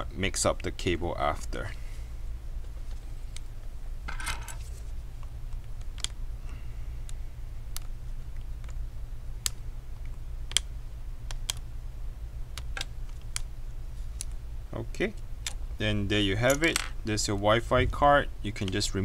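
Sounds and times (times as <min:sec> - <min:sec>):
steady low hum: 0:00.0 - 0:19.0
small sharp clicks and taps: 0:09.4 - 0:10.7.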